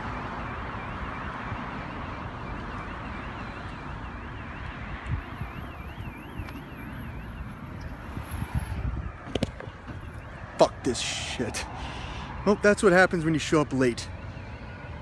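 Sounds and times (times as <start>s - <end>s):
traffic rush: 0.0s - 15.0s
electronic alarm warbling: 0.4s - 11.8s
wind noise: 3.8s - 10.3s.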